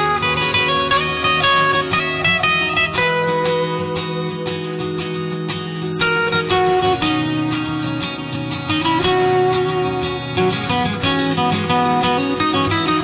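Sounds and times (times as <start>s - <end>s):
plucked string instrument music: 0.0s - 13.0s.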